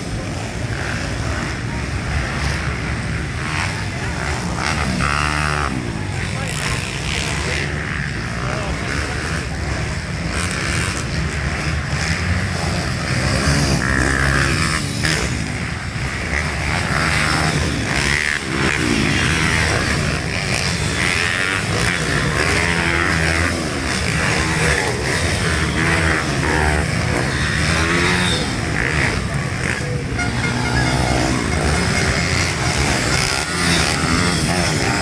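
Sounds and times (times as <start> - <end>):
motorbike engines revving: 0.0 - 35.0.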